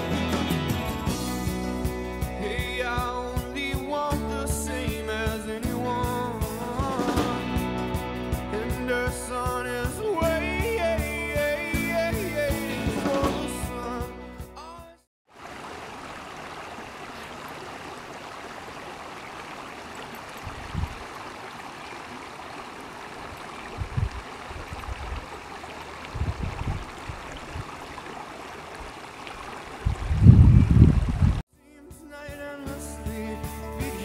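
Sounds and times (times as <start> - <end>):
stream water flowing over rocks: 15.3 - 31.4.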